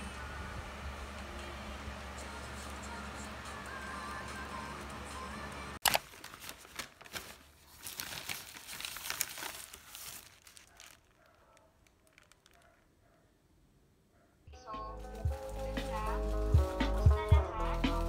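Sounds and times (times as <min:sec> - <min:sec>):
background music: 0:01.3 - 0:05.8, 0:14.5 - 0:18.0
paper wrapper crinkling: 0:05.8 - 0:12.9, 0:14.9 - 0:18.0.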